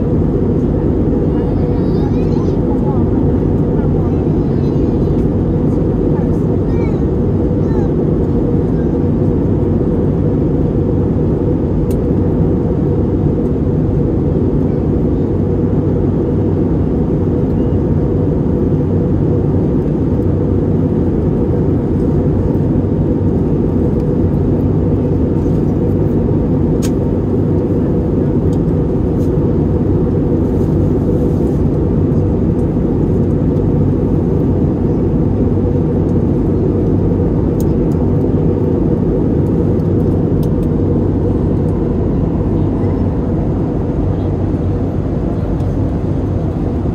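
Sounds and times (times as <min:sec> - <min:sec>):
low jet engine drone: 0:00.0 - 0:46.9
rushing airflow: 0:38.5 - 0:46.9.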